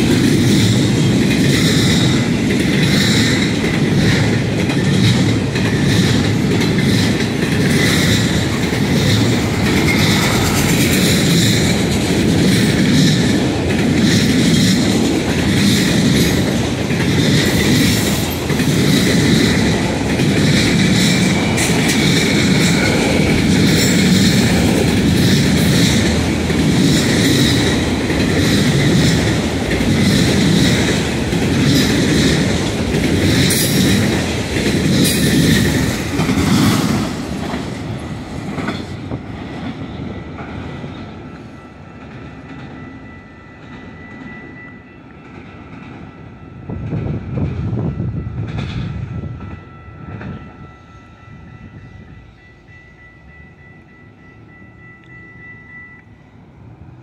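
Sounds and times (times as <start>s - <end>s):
freight train wheels clattering: 0.0s - 50.6s
crossing signal bell ringing: 40.1s - 57.0s.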